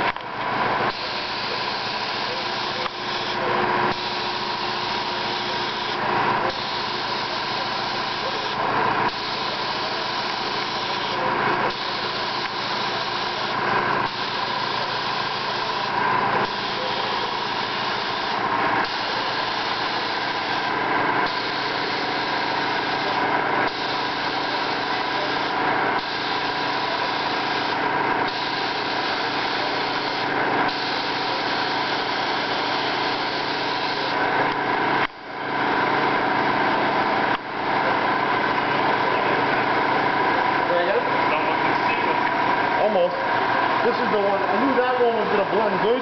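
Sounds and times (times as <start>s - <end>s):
air supply motor hum: 0.0s - 46.0s
paint spray gun hissing: 0.9s - 34.7s.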